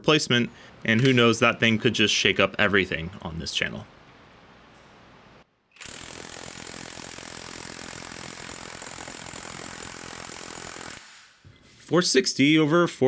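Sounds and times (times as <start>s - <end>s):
impact wrench hammering: 5.8s - 11.5s.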